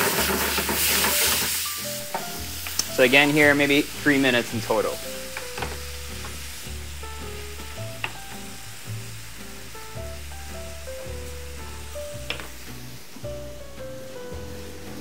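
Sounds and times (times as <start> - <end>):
chicken sizzling in a frying pan: 0.0 - 15.0
background music with bass line: 0.7 - 15.0.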